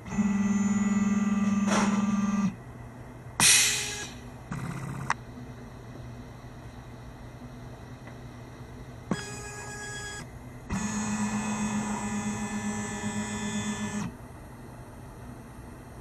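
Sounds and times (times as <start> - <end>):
stepper motors whining: 9.1 - 14.1.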